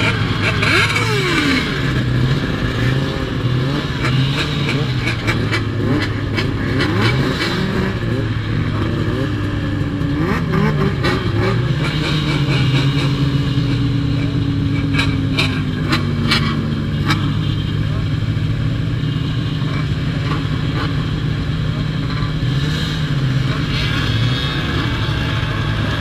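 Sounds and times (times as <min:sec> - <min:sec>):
snowmobile engines idling: 0:00.0 - 0:26.0.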